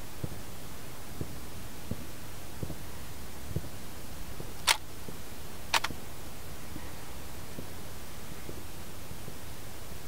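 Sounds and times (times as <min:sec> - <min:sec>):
steady hiss: 0:00.0 - 0:10.0
sharp loud clicks: 0:04.6 - 0:04.8, 0:05.7 - 0:06.0.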